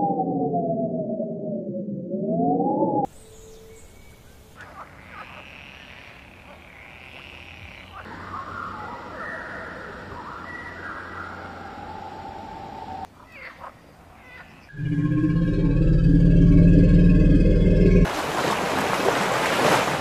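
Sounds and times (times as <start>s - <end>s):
faint outdoor ambience: 3.1s - 14.8s.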